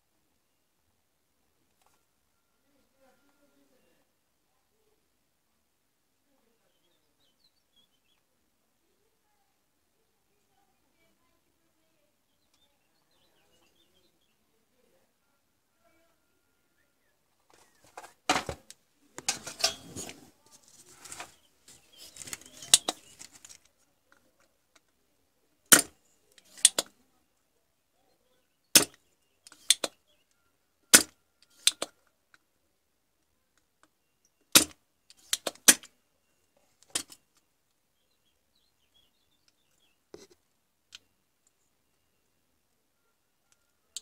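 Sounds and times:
rustling and clatter: 19.2 - 23.7.

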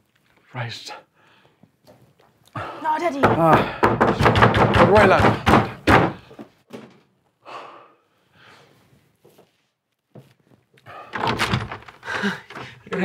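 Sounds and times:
sharp breaths and gasps: 2.5 - 3.0, 7.4 - 9.0, 10.8 - 12.9.

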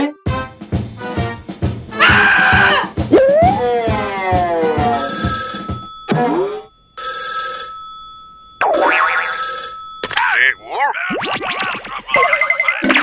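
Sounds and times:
steady beat: 0.3 - 6.4
telephone bell ringing: 4.8 - 10.8.

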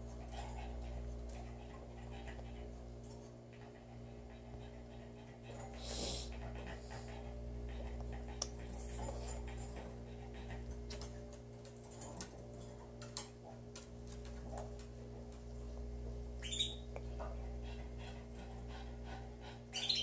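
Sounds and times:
steady low hum: 0.0 - 20.0
canaries chirping: 16.4 - 16.9, 19.7 - 20.0.

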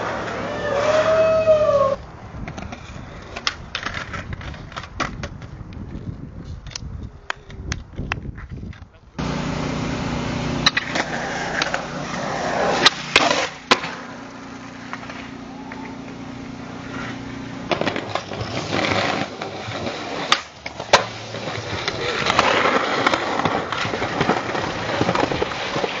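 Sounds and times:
skateboard wheels rolling: 0.0 - 26.0
skateboard tail popping: 10.5 - 26.0
skateboard slapping down: 10.6 - 16.2, 16.8 - 26.0.

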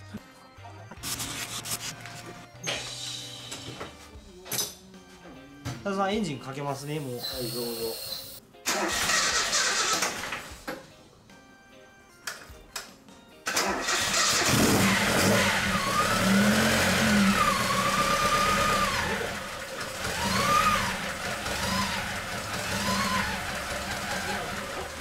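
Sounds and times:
car engine starting and revving: 8.7 - 10.5, 13.5 - 25.0
engine whine: 14.2 - 25.0.

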